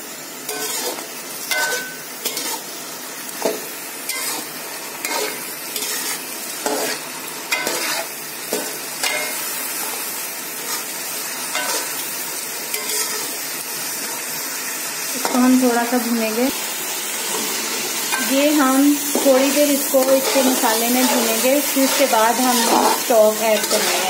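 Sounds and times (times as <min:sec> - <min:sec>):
chicken sizzling in oil: 0:00.0 - 0:24.0
spatula scraping metal pot: 0:00.5 - 0:02.6, 0:19.1 - 0:24.0.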